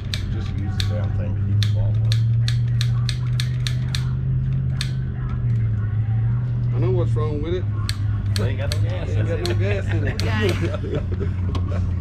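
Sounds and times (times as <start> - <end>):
steady low hum: 0.0 - 12.0
torch igniter clicking: 1.6 - 4.1.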